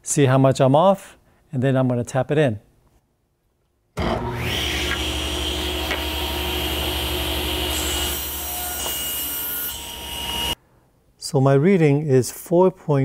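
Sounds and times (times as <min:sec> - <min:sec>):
table saw ripping a board: 0:04.0 - 0:10.6.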